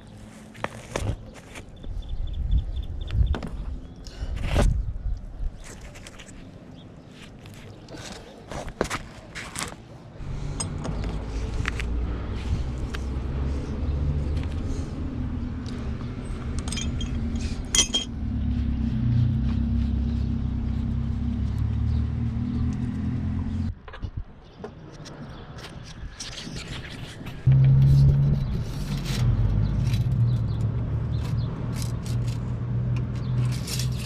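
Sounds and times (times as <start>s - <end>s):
pipe fittings clinking: 16.6s - 18.1s.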